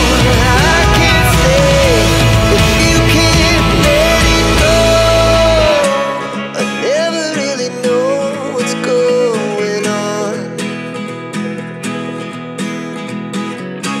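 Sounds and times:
sliding melody line: 0:00.0 - 0:07.2
plucked acoustic guitar: 0:00.0 - 0:14.0.

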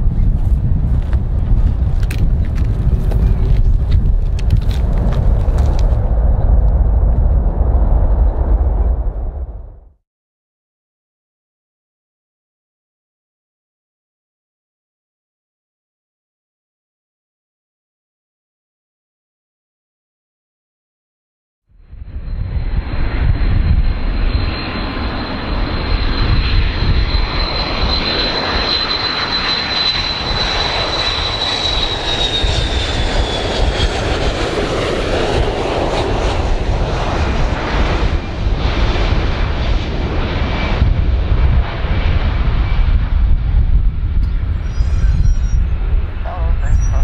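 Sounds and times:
jet plane roar with high whine: 0:00.0 - 0:10.0, 0:21.7 - 0:47.0.

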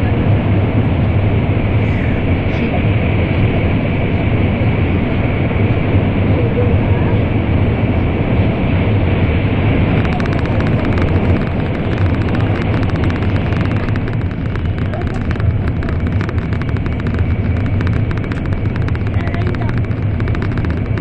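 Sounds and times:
train cabin rumble: 0:09.7 - 0:21.0
crackle of fine clicks: 0:09.8 - 0:21.0.

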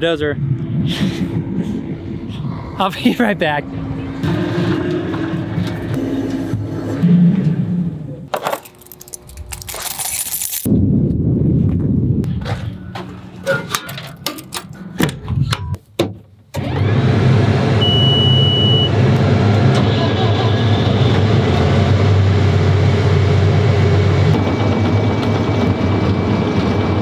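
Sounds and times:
diesel engine running: 0:00.5 - 0:08.2, 0:16.6 - 0:27.0
high electronic beep: 0:17.8 - 0:18.9.

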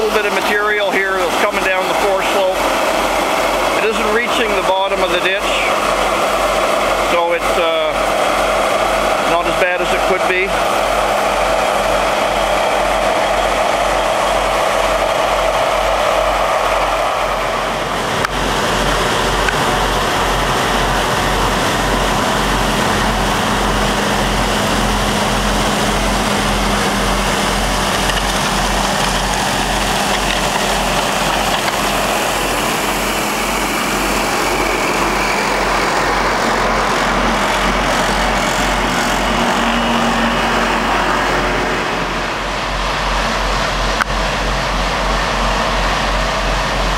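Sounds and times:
motor grader diesel engine: 0:00.0 - 0:46.9
road roller engine: 0:00.0 - 0:46.9.

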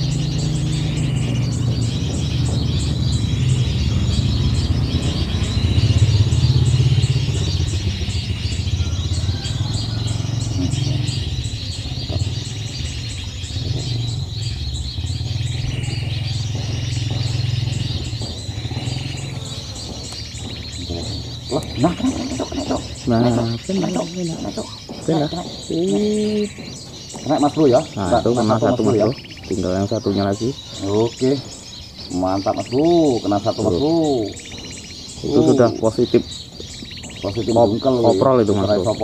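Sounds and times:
high bird chirping: 0:00.0 - 0:39.0
motor engine rumbling: 0:00.0 - 0:39.0.

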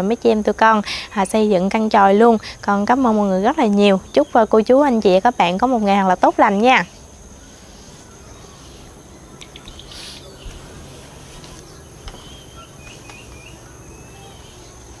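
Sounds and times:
insects trilling: 0:00.0 - 0:15.0
bird chirping: 0:05.9 - 0:15.0.

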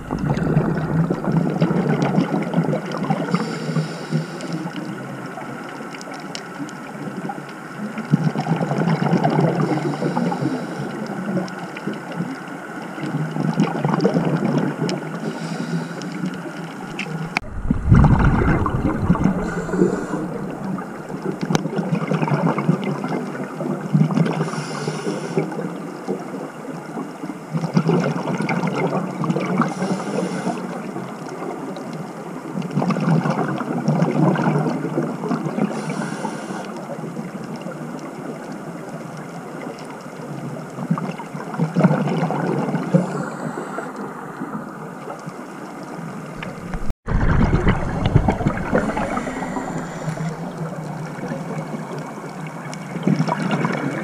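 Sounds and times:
exhaled bubbles underwater: 0:00.0 - 0:54.0
regulator inhale hiss: 0:03.2 - 0:04.8, 0:09.7 - 0:11.1, 0:15.2 - 0:17.1, 0:19.1 - 0:21.3, 0:24.4 - 0:25.6, 0:29.7 - 0:30.8, 0:35.7 - 0:36.8, 0:42.9 - 0:44.1, 0:48.6 - 0:50.8.

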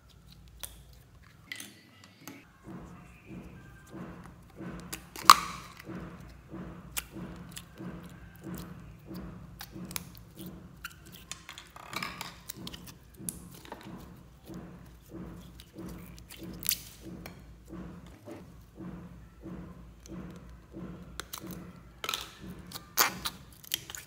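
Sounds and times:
plastic clicks and crinkling: 0:00.0 - 0:18.2
slime squelching: 0:02.4 - 0:18.5.

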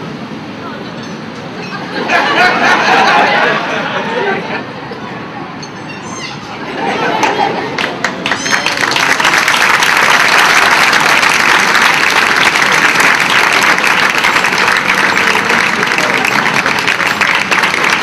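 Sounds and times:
crowd applauding: 0:06.8 - 0:18.0.

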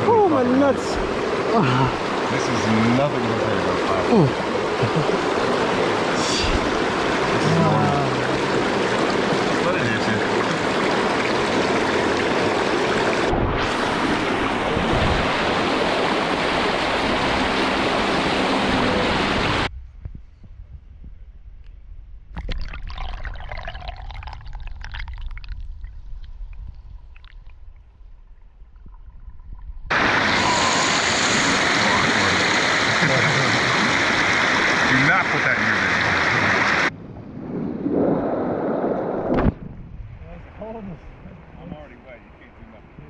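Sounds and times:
river water splashing over rapid: 0:00.0 - 0:19.7, 0:29.9 - 0:36.9.

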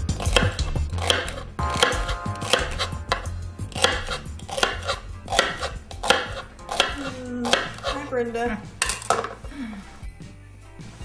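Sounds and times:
knife chopping on cutting board: 0:00.0 - 0:08.0.

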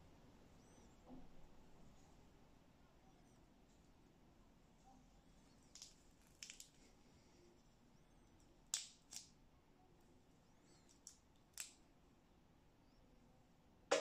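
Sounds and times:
small metal parts clicking: 0:05.7 - 0:06.8, 0:10.8 - 0:11.8.

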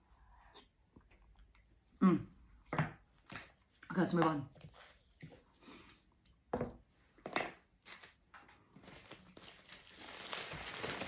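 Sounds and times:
foil wrapper crinkling: 0:08.8 - 0:11.0.

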